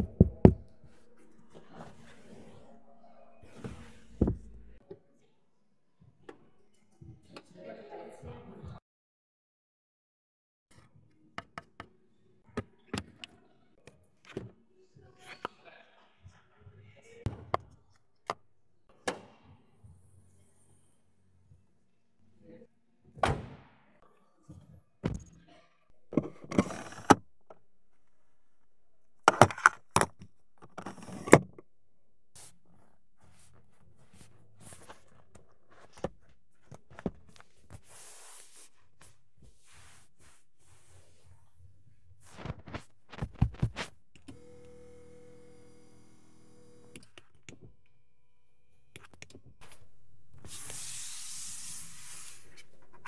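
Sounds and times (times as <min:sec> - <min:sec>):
seat motor humming: 0:44.3 - 0:47.0.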